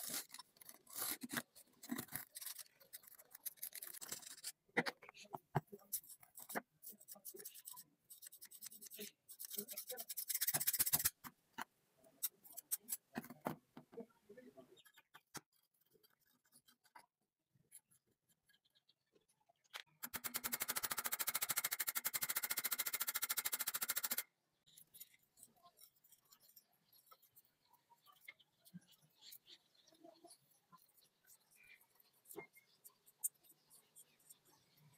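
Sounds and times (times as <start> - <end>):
scissor blades scraping: 0.0 - 4.6.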